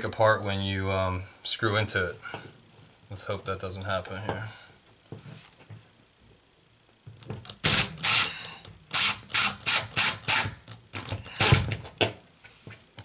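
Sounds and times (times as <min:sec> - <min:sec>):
impact driver driving screw: 0:07.4 - 0:11.8.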